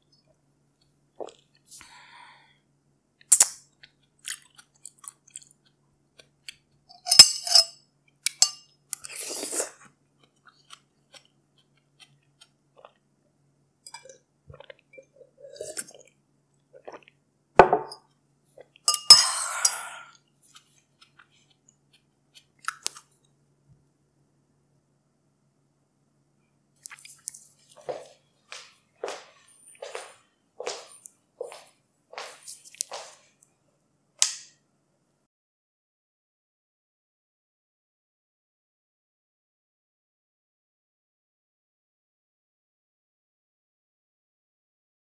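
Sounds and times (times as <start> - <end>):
spoon clinking against glass: 6.9 - 8.6, 18.9 - 19.5
sipping and slurping: 9.0 - 9.8, 14.0 - 16.1, 16.8 - 17.2
chewing and swallowing: 14.0 - 16.2, 16.8 - 17.2, 26.8 - 28.2.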